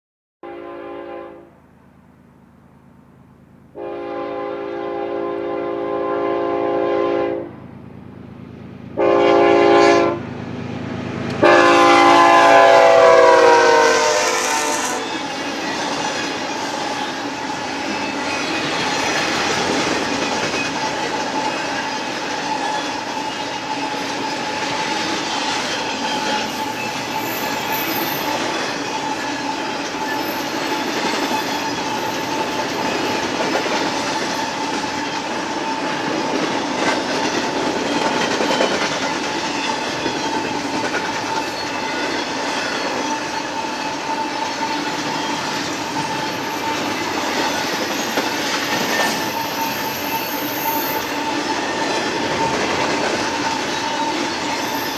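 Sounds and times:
locomotive horn blasts: 0:00.4 - 0:01.6, 0:03.7 - 0:07.6, 0:09.0 - 0:10.3, 0:11.3 - 0:15.2
train cars clickety-clack: 0:11.1 - 0:54.9
thin wheel squeal: 0:14.5 - 0:19.3, 0:20.6 - 0:33.3, 0:41.3 - 0:52.6, 0:53.2 - 0:54.9.

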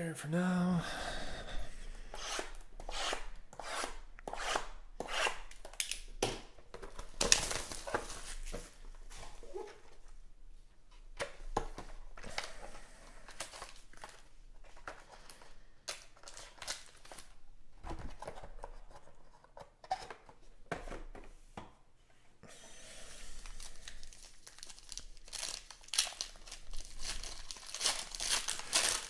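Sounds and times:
foil pack crinkling and tearing: 0:06.9 - 0:08.5, 0:13.2 - 0:17.4, 0:23.4 - 0:29.0.

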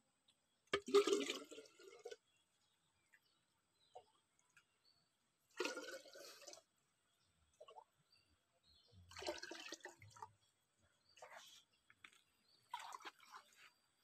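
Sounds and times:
water dripping: 0:00.7 - 0:02.2, 0:09.1 - 0:10.4
water splashing into a jar: 0:00.7 - 0:02.2, 0:05.6 - 0:06.6, 0:09.1 - 0:10.3.

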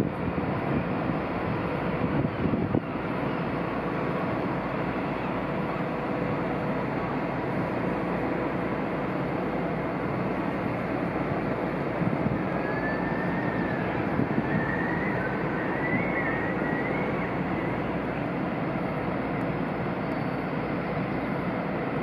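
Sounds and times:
wind buffeting microphone: 0:00.0 - 0:03.2, 0:11.8 - 0:16.6
ship machinery rumble: 0:00.0 - 0:22.0.

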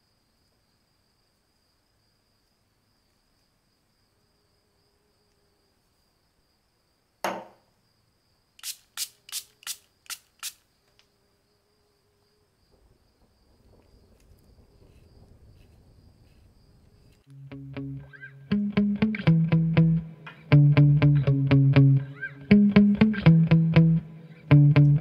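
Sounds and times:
sharp knock: 0:07.2 - 0:07.6
soft low rustle: 0:12.7 - 0:17.3.

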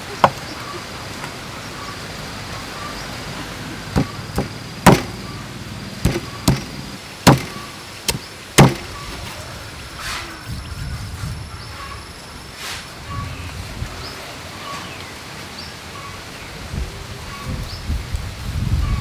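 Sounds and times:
cleaver chopping ribs on wood: 0:04.0 - 0:05.2, 0:06.0 - 0:09.0.

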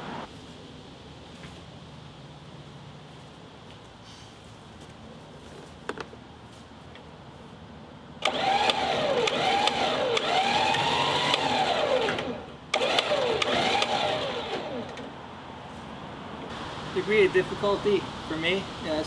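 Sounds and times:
electric winch motor whine: 0:08.2 - 0:15.1.

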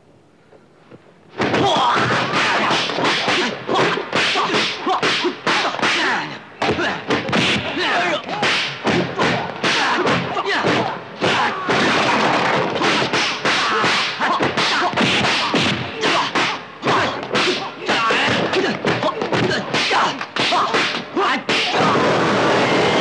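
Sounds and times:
punch and kick impacts: 0:01.4 - 0:22.2
whip-like swishes: 0:02.3 - 0:06.2, 0:12.7 - 0:21.8.

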